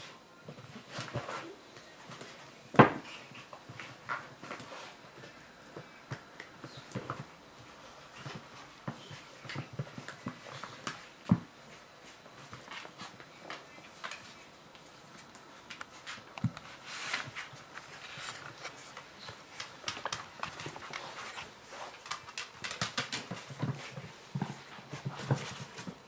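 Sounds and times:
dogs scuffling: 0.5 - 26.0
dog claws clicking on tiles: 18.9 - 23.7.

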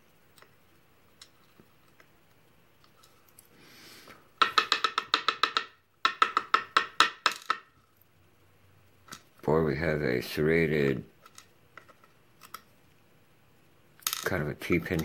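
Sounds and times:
lock cylinder tapping on wood: 4.4 - 7.7.

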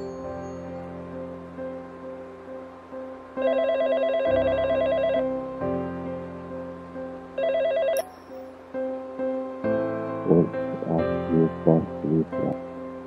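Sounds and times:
soft background music: 0.0 - 13.0
warbling phone ringtone: 3.4 - 5.2, 7.4 - 8.4.

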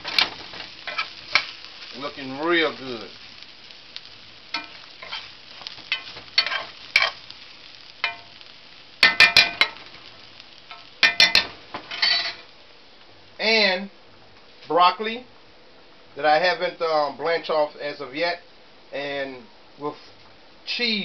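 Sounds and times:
low sizzle: 0.0 - 21.0
metal spoon scraping a skillet: 0.9 - 1.6, 4.6 - 7.3, 10.7 - 12.5.

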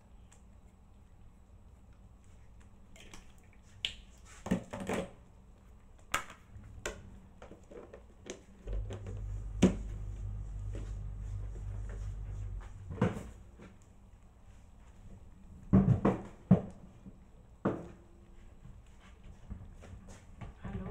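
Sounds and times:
steady low hum: 8.6 - 15.7.

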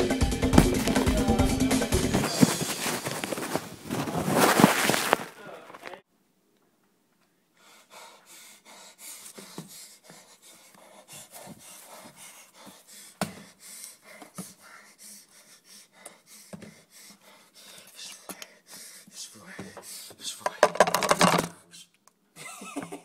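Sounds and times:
person panting and gasping: 0.5 - 5.1, 7.6 - 20.7.

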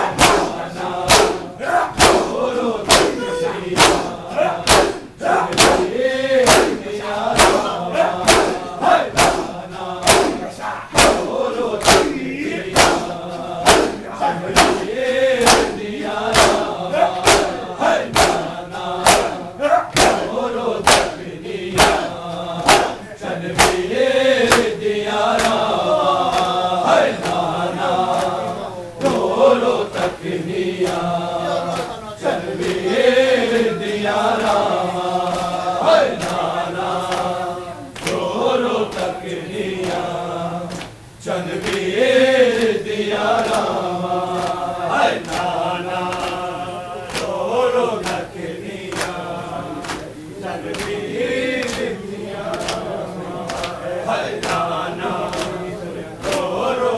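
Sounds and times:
crowd of men chanting: 0.0 - 56.9
hands slapping chests: 0.1 - 6.8, 7.4 - 23.0, 23.6 - 24.7, 25.4 - 25.6, 36.1 - 36.4, 45.2 - 46.4, 47.1 - 47.4, 48.9 - 49.2, 49.8 - 50.1, 51.6 - 51.9, 52.5 - 52.8, 53.4 - 53.8, 56.2 - 56.5.

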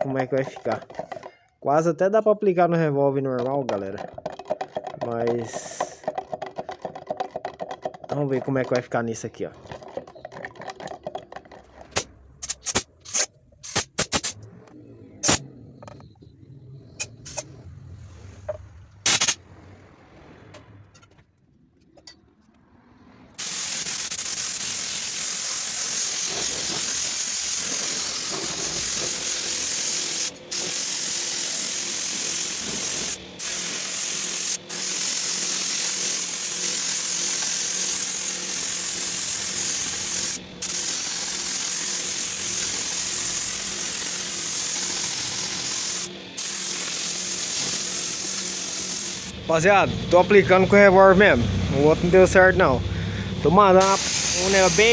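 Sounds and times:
paint spray gun hissing: 23.4 - 49.4, 53.1 - 54.9.

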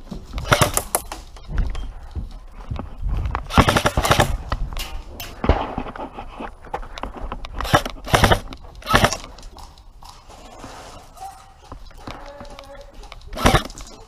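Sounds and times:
airsoft gunfire bursts: 0.4 - 1.0, 3.5 - 4.4, 7.6 - 9.2, 13.4 - 13.7.

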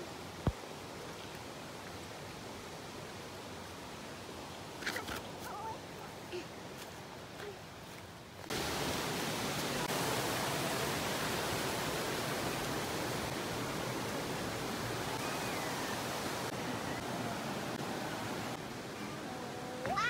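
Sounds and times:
water rushing in a rocky stream: 0.0 - 20.0.

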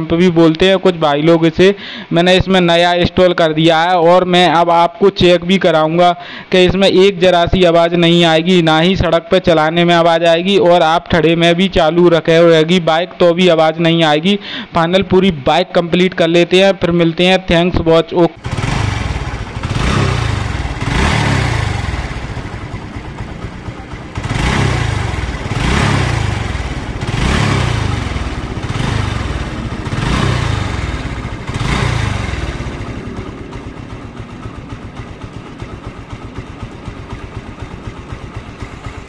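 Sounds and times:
motorcycle engine revving and idling: 18.4 - 39.0.

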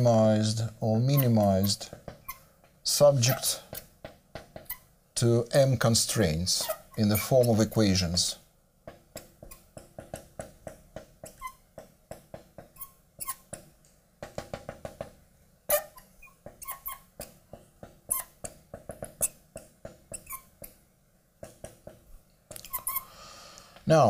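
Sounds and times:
marker tapping and squeaking on glass: 1.0 - 4.9, 6.6 - 7.8, 8.8 - 20.8, 21.4 - 23.1.

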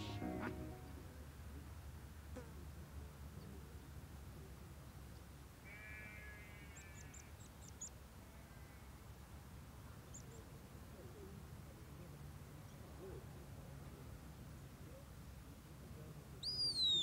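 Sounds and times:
distant animal calls: 0.0 - 0.6, 5.7 - 7.3
short harsh call: 0.0 - 0.9
small bird chirping: 16.4 - 17.0.

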